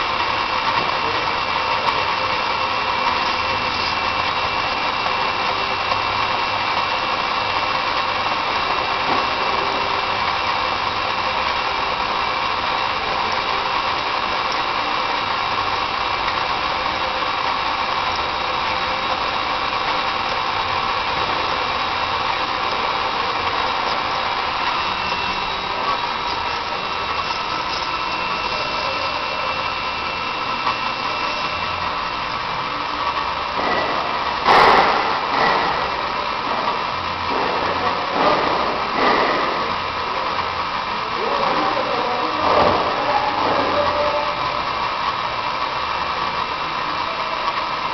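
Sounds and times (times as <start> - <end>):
machine whirring hum: 0.0 - 47.9.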